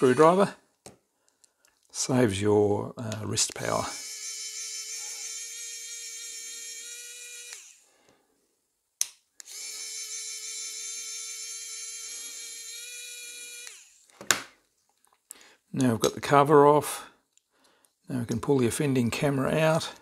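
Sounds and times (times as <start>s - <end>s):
electric screwdriver motor whining: 3.8s - 7.9s, 9.4s - 14.1s.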